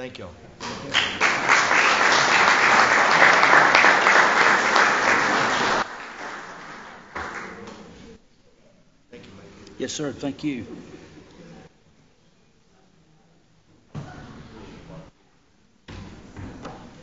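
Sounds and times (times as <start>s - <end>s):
audience applauding: 0.6s - 8.0s.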